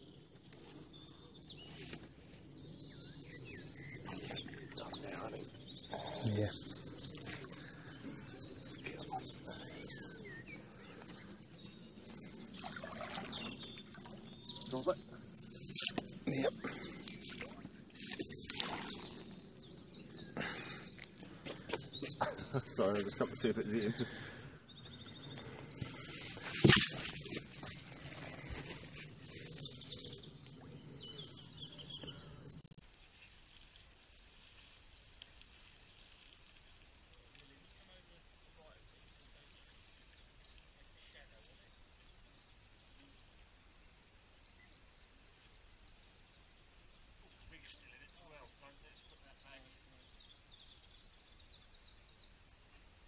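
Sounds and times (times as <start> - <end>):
birds chirping: 0.0 - 33.6, 34.4 - 52.9
outdoor background noise: 0.0 - 53.0
whistled bird notes: 0.6 - 17.3.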